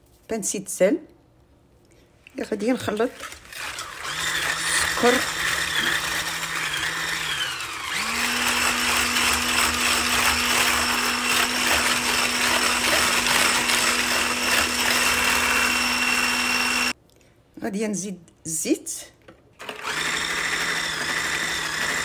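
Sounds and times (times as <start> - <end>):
electric blender whisking: 2.8 - 17.0, 19.6 - 22.0.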